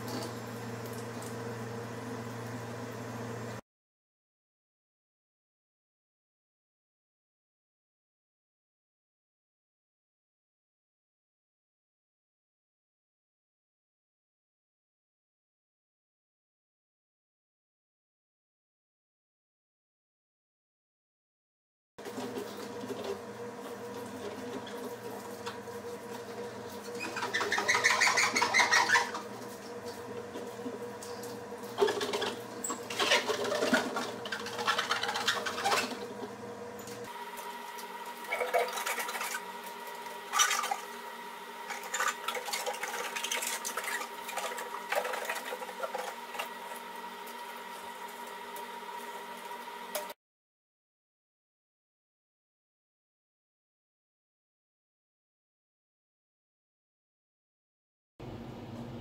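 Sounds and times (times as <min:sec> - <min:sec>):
electrical hum: 0:22.0 - 0:50.2, 0:58.2 - 0:59.0
scrubbing and rubbing in steel bin: 0:31.7 - 0:36.1, 0:41.7 - 0:46.7.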